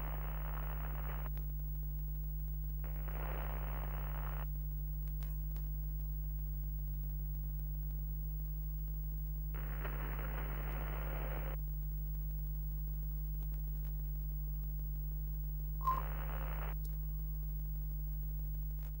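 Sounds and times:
static hiss bursts: 0.0s - 1.3s, 2.8s - 4.5s, 9.6s - 11.6s, 15.8s - 16.8s
low electrical hum: 0.0s - 19.0s
brief electronic blip: 15.8s - 16.2s.

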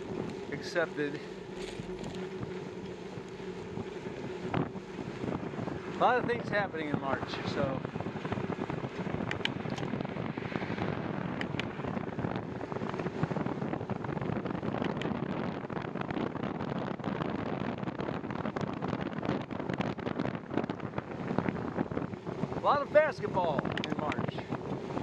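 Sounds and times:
wind buffeting microphone: 0.0s - 25.0s
faint clicks: 9.2s - 9.9s.

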